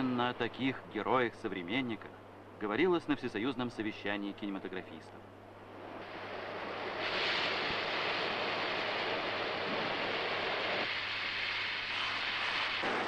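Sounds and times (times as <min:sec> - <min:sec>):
molten metal rushing: 0:05.8 - 0:13.0.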